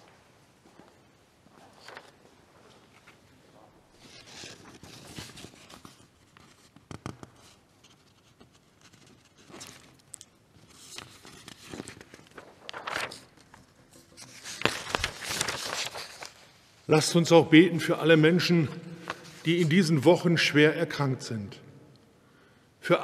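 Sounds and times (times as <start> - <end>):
soft rustling and handling: 0.0 - 16.9.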